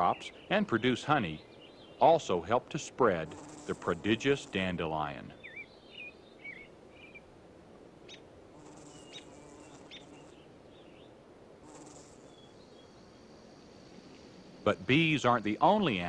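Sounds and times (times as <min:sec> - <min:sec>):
faint meadow ambience: 0:00.0 - 0:16.0
bird chirps and twitters: 0:05.4 - 0:07.2.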